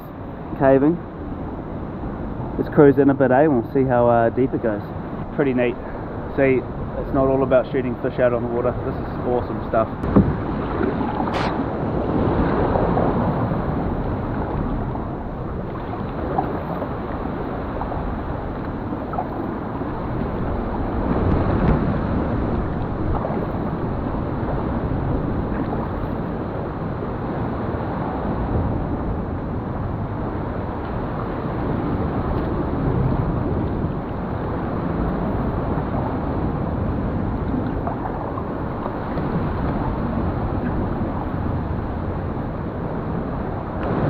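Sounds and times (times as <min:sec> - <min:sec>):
wind noise on microphone: 0:00.0 - 0:03.6, 0:04.6 - 0:44.0
water sloshing against hull: 0:07.9 - 0:44.0
kayak paddle strokes: 0:10.0 - 0:11.7.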